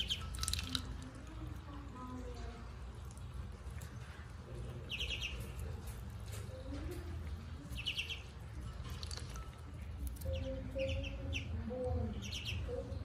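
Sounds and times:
ducklings peeping: 0:00.0 - 0:00.9, 0:04.5 - 0:06.2, 0:07.2 - 0:13.0.

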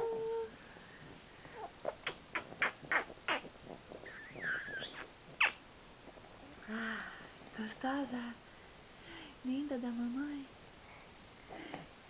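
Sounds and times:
smacking kisses: 0:01.6 - 0:06.6
baby squealing laugh: 0:04.1 - 0:05.6.

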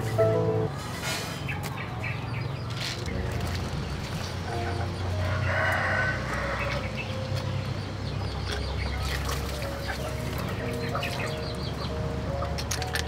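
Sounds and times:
chickens clucking: 0:01.3 - 0:13.0
rooster crowing: 0:05.2 - 0:06.8.

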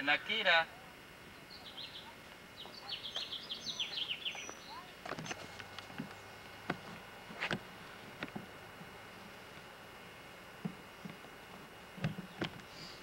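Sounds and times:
bird chirping: 0:01.3 - 0:05.0.

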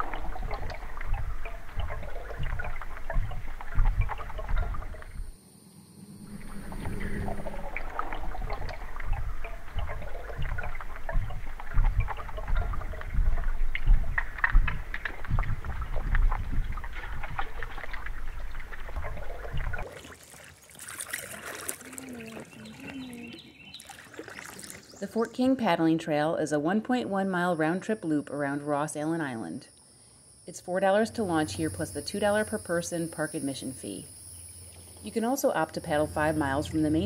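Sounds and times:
kayak paddle splashing: 0:00.0 - 0:05.3, 0:06.3 - 0:25.4
muffled underwater water rumbling: 0:00.0 - 0:05.4, 0:06.1 - 0:20.2, 0:34.6 - 0:37.0.

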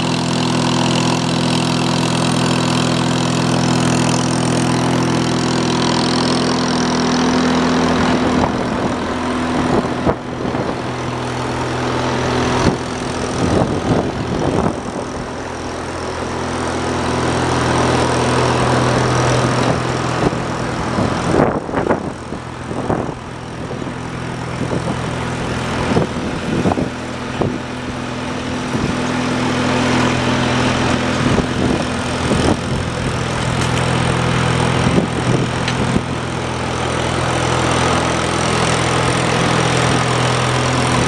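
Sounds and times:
gas engine running: 0:00.0 - 0:41.0.

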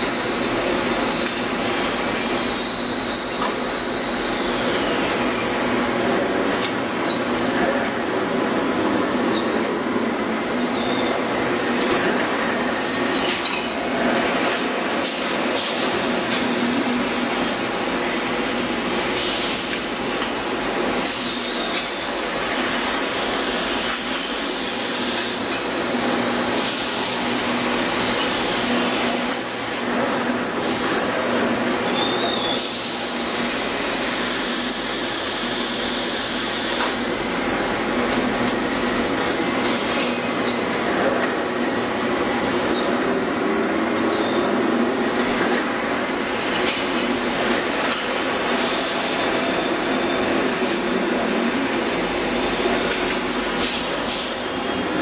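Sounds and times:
faint high squeal: 0:02.4 - 0:04.5
machinery hiss: 0:17.0 - 0:25.5, 0:26.2 - 0:28.1, 0:32.2 - 0:38.3, 0:43.0 - 0:54.9.

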